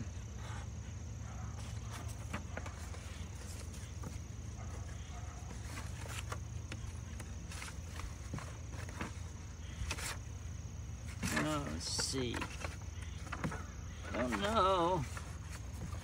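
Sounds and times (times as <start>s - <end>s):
paper rustling and crackling: 1.6s - 10.4s, 11.0s - 16.0s.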